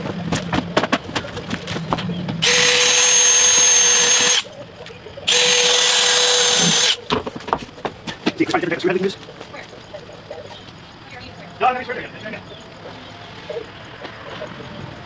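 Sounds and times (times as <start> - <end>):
footsteps on wooden boards: 0.0 - 2.4, 7.1 - 9.6
cordless drill driving screws: 2.4 - 4.5, 5.3 - 7.0.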